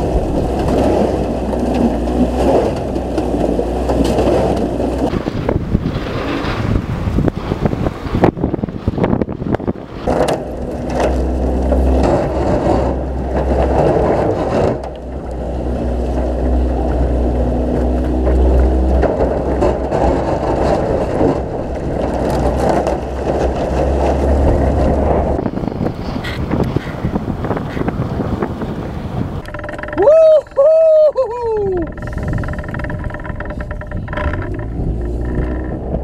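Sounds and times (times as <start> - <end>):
outboard motor running: 0.0 - 36.0
water rushing: 0.0 - 36.0
sharp knocks: 29.4 - 30.1.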